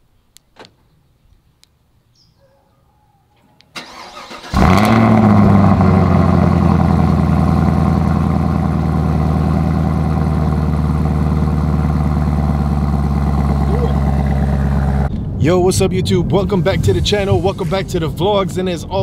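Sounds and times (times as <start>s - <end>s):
starter motor cranking: 3.8s - 5.5s
car engine revving and idling: 3.9s - 15.1s.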